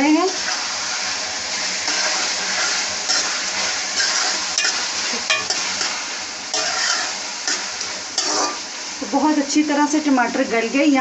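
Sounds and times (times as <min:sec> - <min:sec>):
meat sizzling in a pot: 0:00.0 - 0:11.0
spoon stirring and scraping: 0:01.8 - 0:08.7
spoon clinking against pot: 0:04.6 - 0:05.6.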